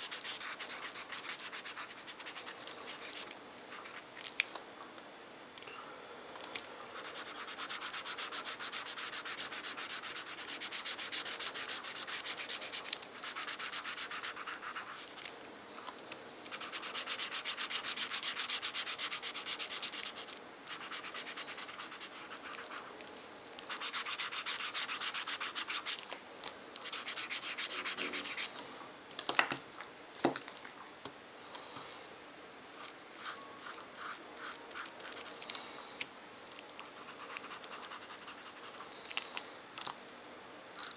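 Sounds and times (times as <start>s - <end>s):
felt-tip marker scribbling on paper: 0.0s - 4.0s, 7.0s - 15.0s, 16.5s - 22.9s, 23.7s - 26.0s, 26.8s - 28.5s.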